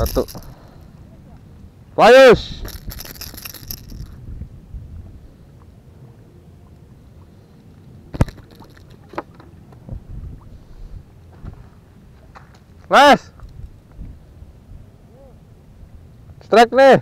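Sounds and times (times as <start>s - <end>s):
fishing reel clicks: 0.0s - 0.8s, 2.6s - 4.2s
low rumble of handling and wind: 0.0s - 17.0s.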